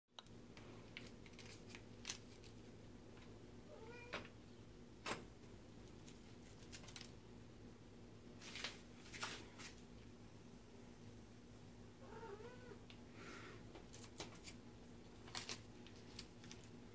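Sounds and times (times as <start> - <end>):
low steady hum: 0.2 - 16.9
cat meow: 3.7 - 4.2, 12.0 - 12.8.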